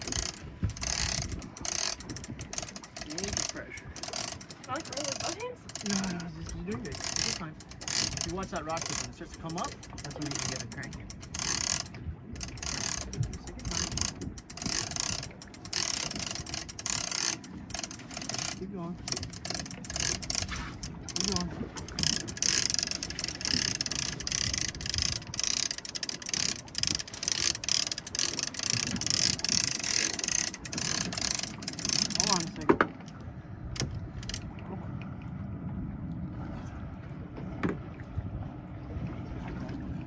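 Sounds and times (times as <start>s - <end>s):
fishing reel gears clicking: 0.0s - 34.5s.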